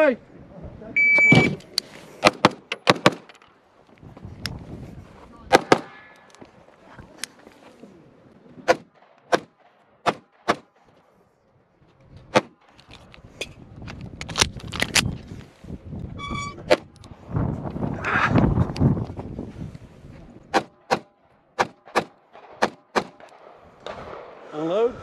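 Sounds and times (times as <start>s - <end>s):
pistol shots: 8.7s - 10.8s, 20.5s - 24.3s.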